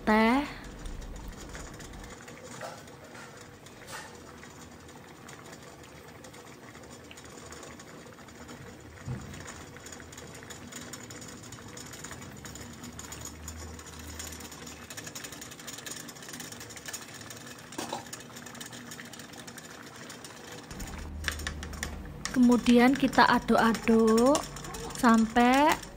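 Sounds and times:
water boiling in a pan: 0:00.0 - 0:25.9.

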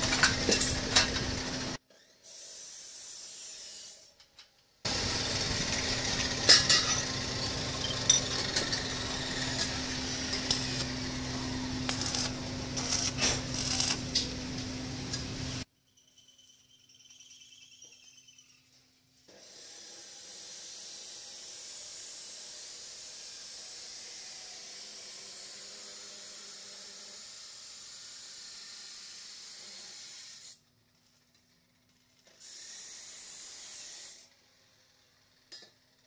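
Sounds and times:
welding arc hissing and crackling: 0:04.9 - 0:15.7.

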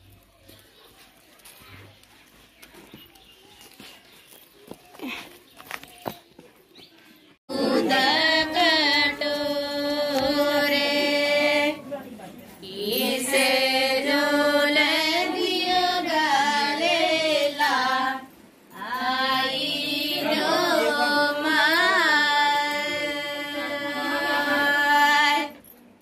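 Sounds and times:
women singing devotional song: 0:07.4 - 0:25.7.

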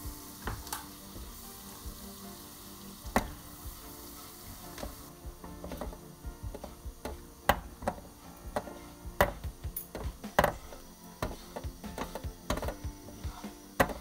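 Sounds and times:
spatula scraping a frying pan: 0:03.1 - 0:14.0.

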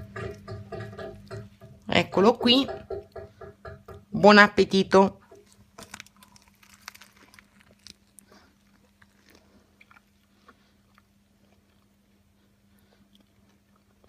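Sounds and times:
low electrical hum: 0:00.0 - 0:14.0
chewing with wet crunches: 0:05.4 - 0:14.0.

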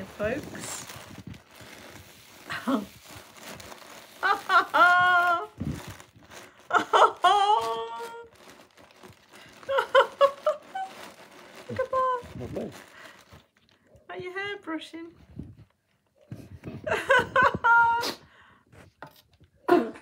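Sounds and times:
bubble wrap crinkling: 0:00.0 - 0:14.4.

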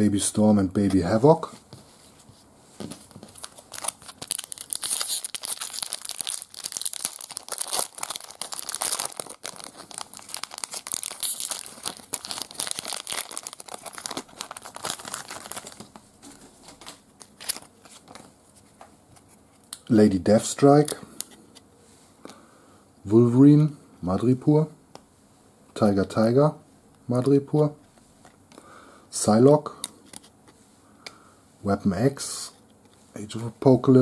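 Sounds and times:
cards being handled: 0:02.8 - 0:19.7
foil wrapper tearing and crinkling: 0:03.4 - 0:15.9, 0:17.2 - 0:17.9.

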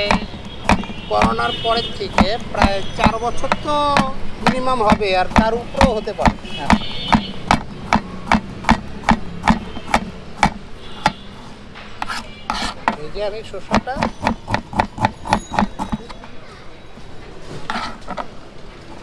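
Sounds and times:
knife chopping on cutting board: 0:00.0 - 0:11.2, 0:13.7 - 0:16.0.

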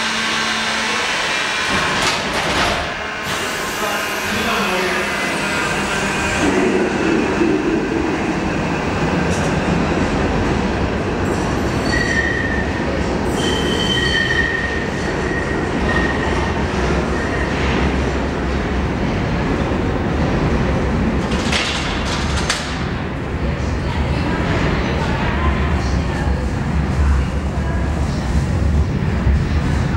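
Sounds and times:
train wheels rumbling on rails: 0:00.0 - 0:29.9
high wheel squeal: 0:11.8 - 0:12.6, 0:13.3 - 0:16.3.

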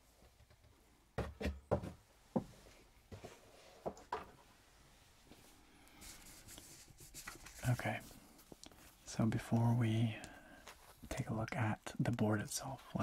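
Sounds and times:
knocks and taps on box packing: 0:01.2 - 0:02.5.

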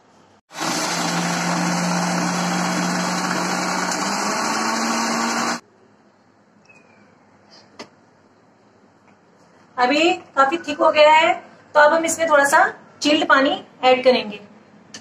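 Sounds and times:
mixer grinder motor hum: 0:00.5 - 0:05.6.

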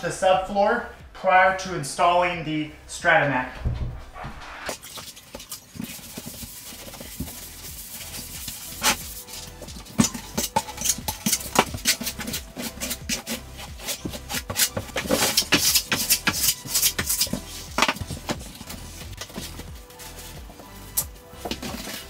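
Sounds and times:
background music: 0:00.0 - 0:22.0
trowel scraping and tapping: 0:05.0 - 0:20.3.

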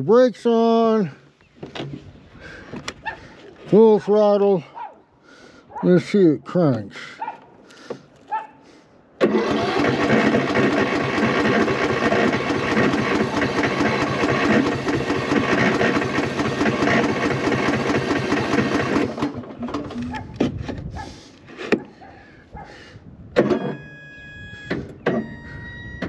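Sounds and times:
mower engine cranking: 0:09.2 - 0:20.8
short electronic tones: 0:23.4 - 0:26.0.

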